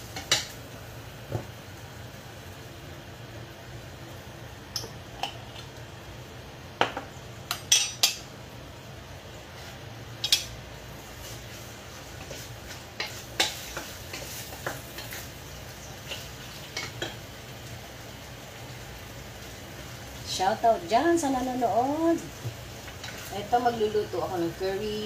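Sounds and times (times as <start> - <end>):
wooden spoon stirring in a pot: 11.0 - 15.4.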